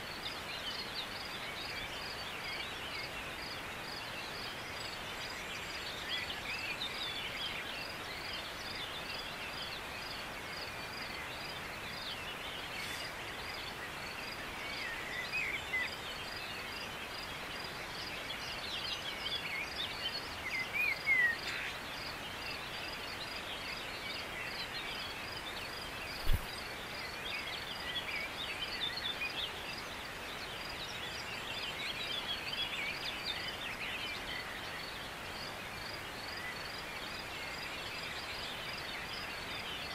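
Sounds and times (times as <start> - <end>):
small birds chirping: 0.0 - 39.9
steady hiss: 7.8 - 14.6, 20.5 - 27.2.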